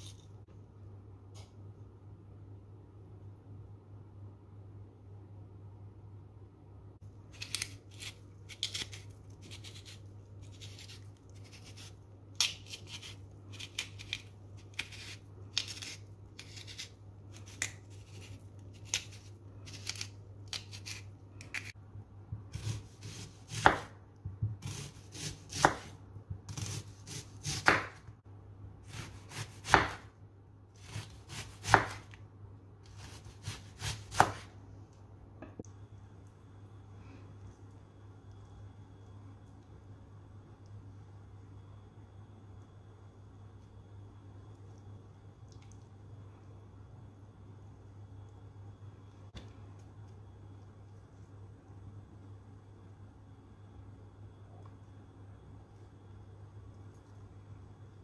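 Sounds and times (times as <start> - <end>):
faint low hum: 0.0 - 58.0
knife slicing on cutting board: 22.5 - 23.9, 24.6 - 28.0, 30.8 - 32.1, 32.9 - 34.5.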